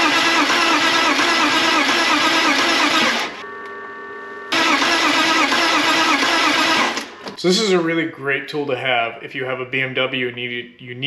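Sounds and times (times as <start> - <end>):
car engine cranking: 4.5 - 7.4.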